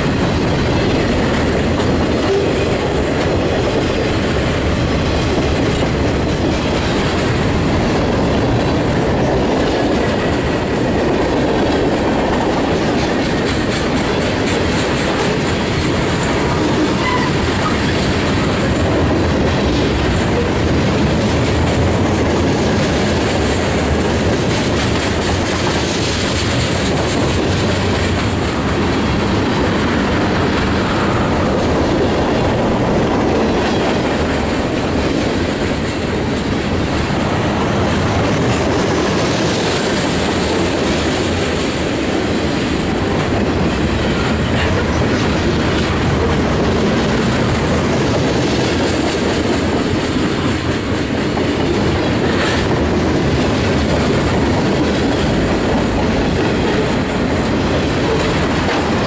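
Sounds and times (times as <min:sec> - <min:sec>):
freight train wheels rumbling on rails: 0:00.0 - 0:59.0
train cars clattering: 0:00.0 - 0:59.0.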